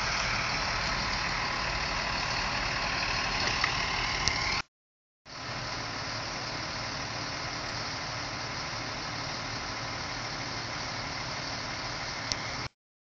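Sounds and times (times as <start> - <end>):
vehicle engine idling: 0.0 - 4.6, 5.3 - 12.7.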